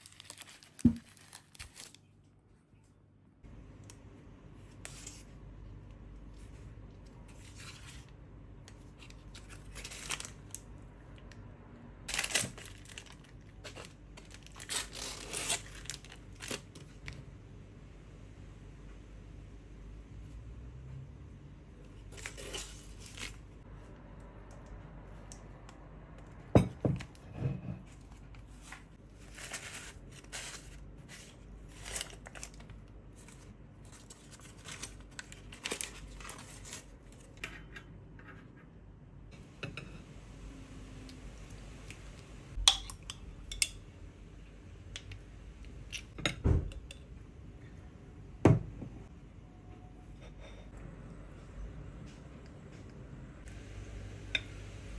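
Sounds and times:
paper crinkling and rustling: 0:00.0 - 0:02.1, 0:06.3 - 0:10.6, 0:12.1 - 0:17.2, 0:22.1 - 0:23.6, 0:28.0 - 0:37.4.

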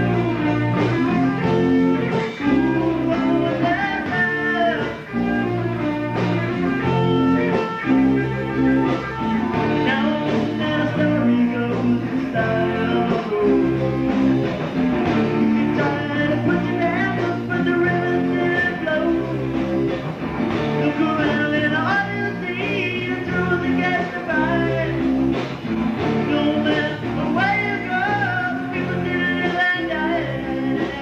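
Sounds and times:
person singing: 0:00.0 - 0:14.1, 0:15.2 - 0:19.6, 0:20.7 - 0:25.3, 0:26.1 - 0:31.0
rock band music: 0:00.0 - 0:31.0.

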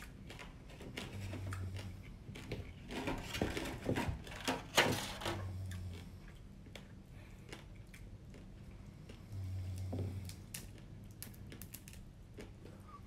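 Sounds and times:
crab shell cracking and crunching: 0:10.2 - 0:12.8.

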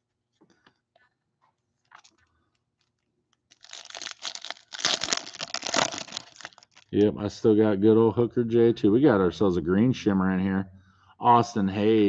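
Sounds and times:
wrapper tearing and crinkling: 0:01.8 - 0:02.2, 0:02.8 - 0:07.0.

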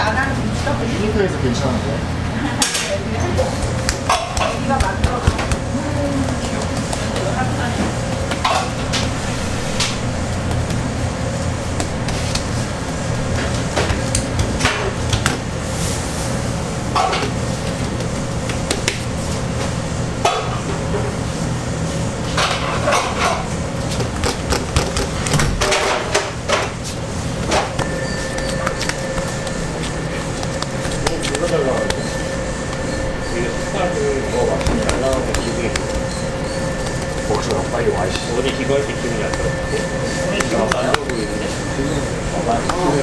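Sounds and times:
steady machine hum: 0:00.0 - 0:43.0
kitchen knocks and clatter: 0:22.4 - 0:26.8.

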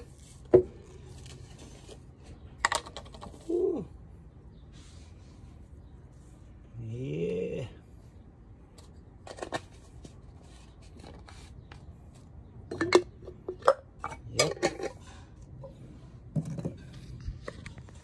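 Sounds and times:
hard containers clinking: 0:12.6 - 0:15.8.

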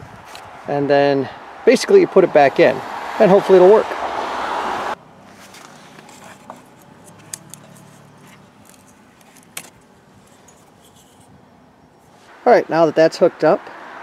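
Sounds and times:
plastic clicks and rattles: 0:06.0 - 0:11.3.

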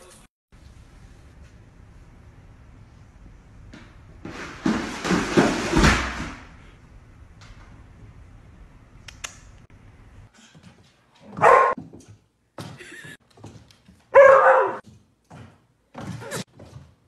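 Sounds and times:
dog barking: 0:11.3 - 0:11.8, 0:14.1 - 0:14.8.

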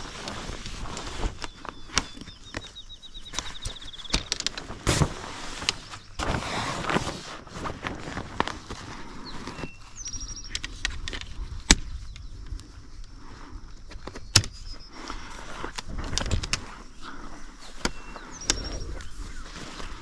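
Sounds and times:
wind rumble on microphone: 0:07.5 - 0:14.8, 0:15.6 - 0:16.9, 0:17.8 - 0:20.0.

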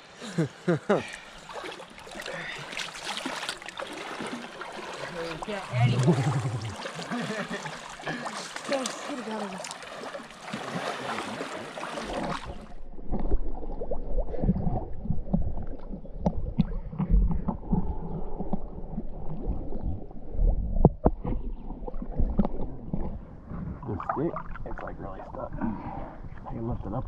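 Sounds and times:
river water splashing and rushing: 0:01.0 - 0:12.9
muffled water sloshing and gurgling: 0:01.0 - 0:27.0.

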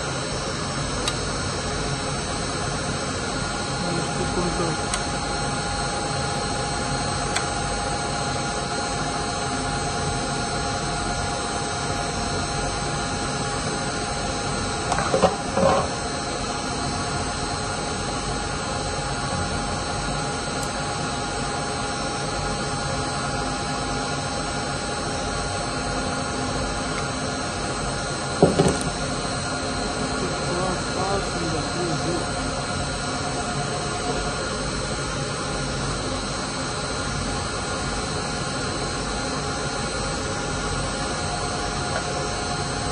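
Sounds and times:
machinery drone: 0:03.3 - 0:08.0, 0:14.8 - 0:18.0, 0:26.9 - 0:36.2.

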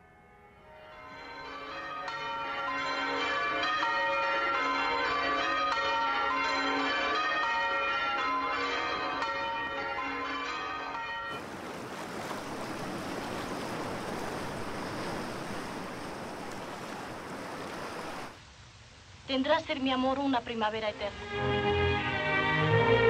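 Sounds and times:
church bells pealing: 0:00.4 - 0:11.8.

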